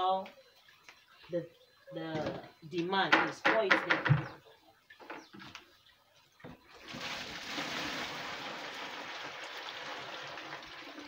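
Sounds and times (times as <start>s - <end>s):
water pouring into plastic basin: 6.6s - 11.0s.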